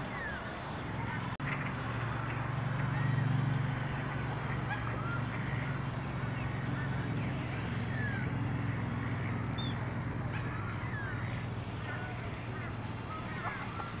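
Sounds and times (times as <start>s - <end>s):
ducks chirping and calling: 9.0s - 14.0s.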